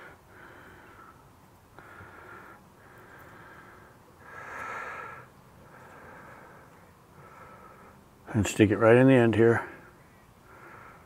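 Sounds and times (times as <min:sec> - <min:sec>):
man breathing through nose: 0:00.0 - 0:08.1, 0:10.4 - 0:11.0.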